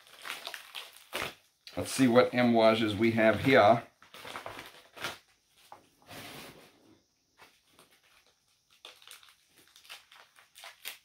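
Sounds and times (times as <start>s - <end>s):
packaging rustling and crinkling: 0.0s - 1.4s, 3.1s - 5.9s, 7.4s - 11.0s.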